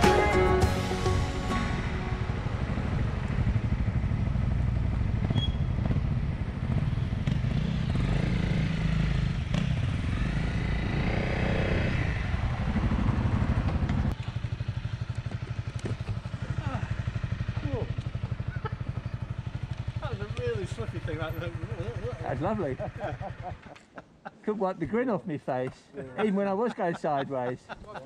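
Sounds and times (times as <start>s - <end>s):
motorcycle engine revving: 1.8s - 23.8s.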